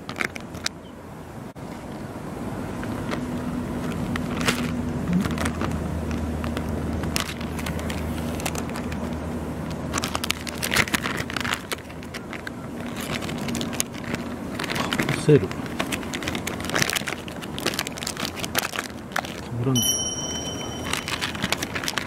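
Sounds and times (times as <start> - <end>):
crackly rustles: 0.0 - 0.8, 2.8 - 19.6
plastic pouch crinkling and tearing: 9.9 - 19.5.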